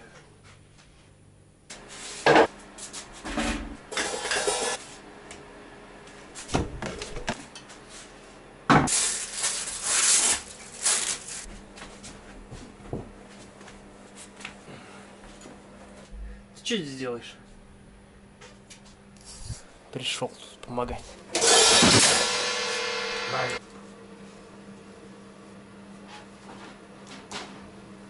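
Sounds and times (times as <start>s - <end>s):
drums and hardware clattering: 21.4s - 23.4s.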